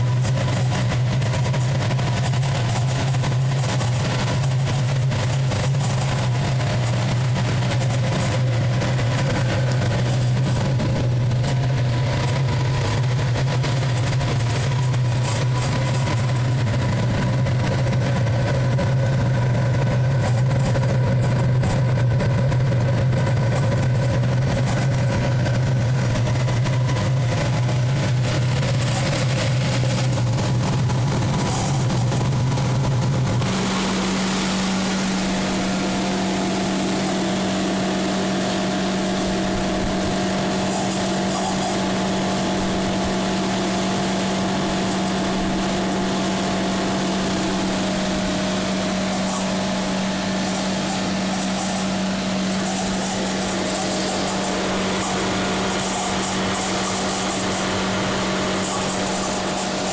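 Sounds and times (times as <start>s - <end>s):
heater fan and burner hum: 0.0s - 59.9s.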